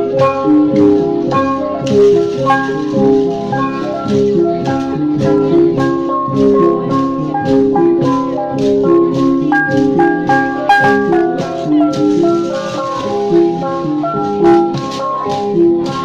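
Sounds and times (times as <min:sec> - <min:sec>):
gong ensemble ringing rhythm: 0:00.0 - 0:16.0.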